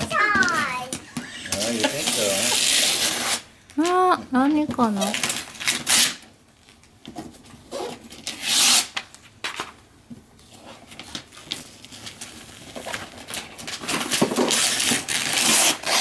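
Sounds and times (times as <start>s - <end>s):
wrapping paper tearing: 1.5s - 3.5s, 5.0s - 6.3s, 7.7s - 9.7s, 10.6s - 16.0s.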